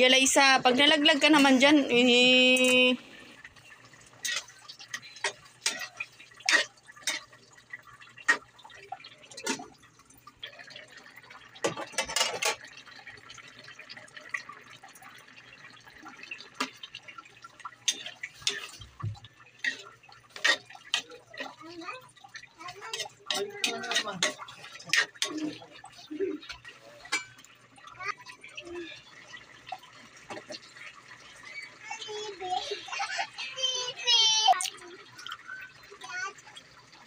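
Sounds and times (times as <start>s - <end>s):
thick stew bubbling in a pan: 0.0s - 37.0s.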